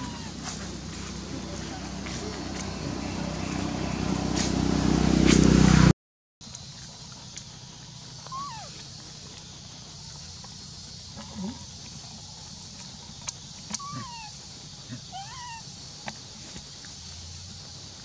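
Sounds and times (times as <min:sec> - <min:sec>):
macaques cooing: 0:00.0 - 0:03.8, 0:08.3 - 0:08.8, 0:13.7 - 0:14.3, 0:14.9 - 0:15.6.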